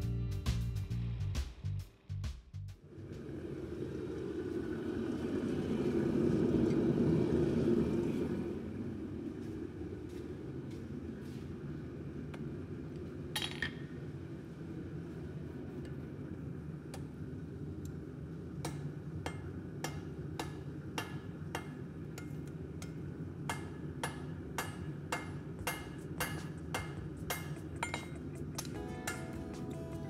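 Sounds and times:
steady low hum: 0:02.7 - 0:30.0
hammer ringing on anvil: 0:18.7 - 0:29.8.

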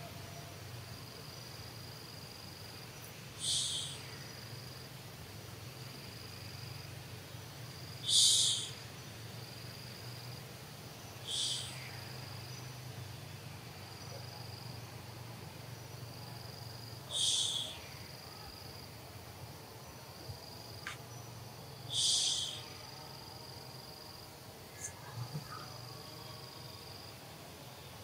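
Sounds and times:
high insect trill: 0:00.0 - 0:28.0
high-pitched insect buzz: 0:01.3 - 0:04.8, 0:07.8 - 0:10.4, 0:11.0 - 0:12.8, 0:15.8 - 0:18.9, 0:20.2 - 0:28.0
faint clicks: 0:20.8 - 0:21.1.

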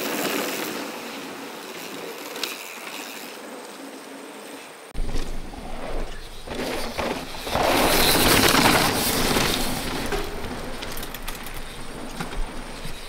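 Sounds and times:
bike tyres hissing on dirt: 0:00.0 - 0:13.0
bike click: 0:06.5 - 0:13.0.

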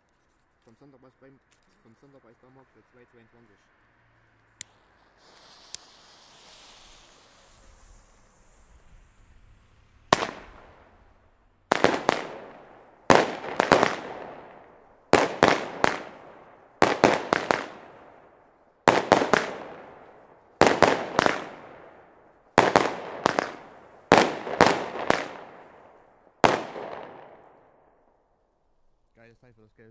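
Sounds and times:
fireworks battery sharp bangs: 0:04.6 - 0:28.1.

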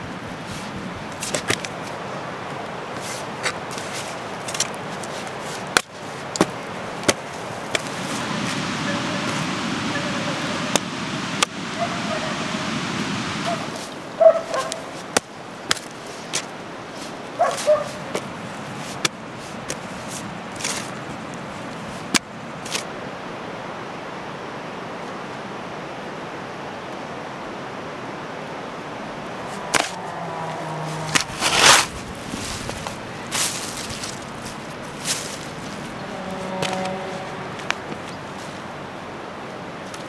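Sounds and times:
hoe striking and scraping soil: 0:29.6 - 0:38.2.

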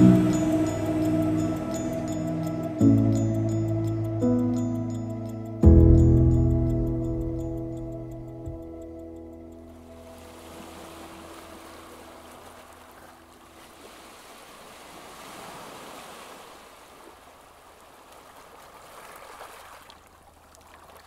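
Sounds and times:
music: 0:00.0 - 0:11.8.

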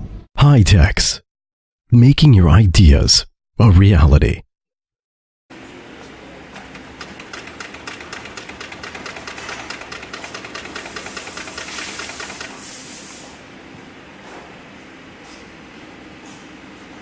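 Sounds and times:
sewing machine motor hum: 0:06.6 - 0:12.8
sewing machine needle clatter: 0:06.7 - 0:12.6.

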